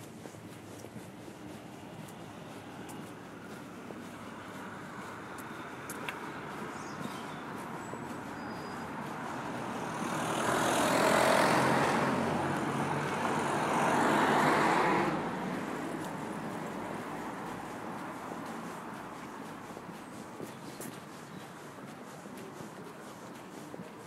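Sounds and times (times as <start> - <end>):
vehicles passing on road: 0.0 - 24.0.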